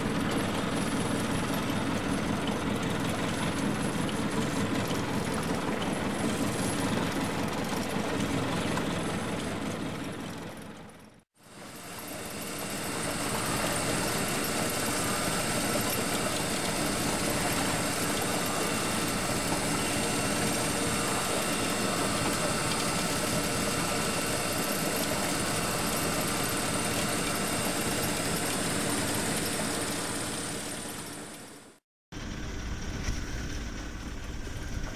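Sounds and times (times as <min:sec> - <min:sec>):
fishing reel motor drone: 0:11.5 - 0:31.4.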